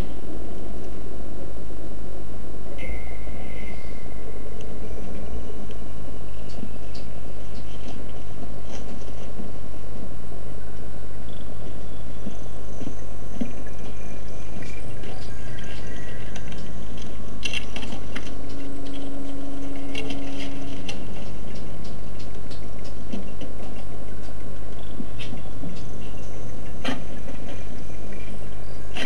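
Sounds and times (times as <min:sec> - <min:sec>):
low electrical hum: 0:00.0 - 0:29.0
brief held tone: 0:02.7 - 0:04.4.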